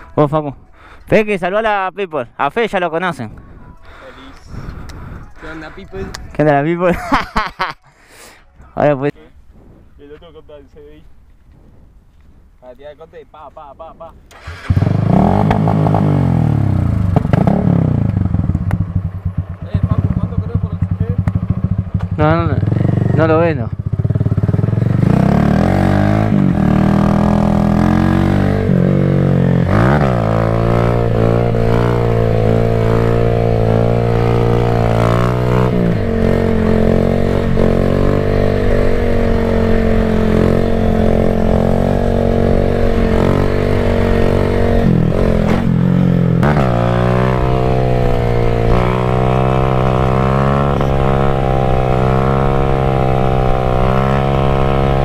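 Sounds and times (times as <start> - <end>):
motorcycle engine revving: 14.3 - 55.0.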